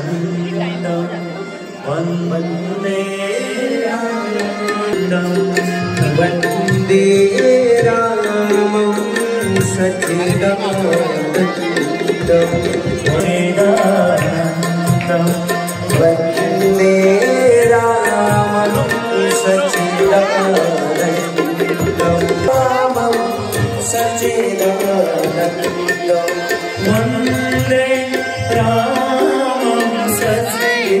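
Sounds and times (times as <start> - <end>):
tabla drumming: 2.0 - 31.0.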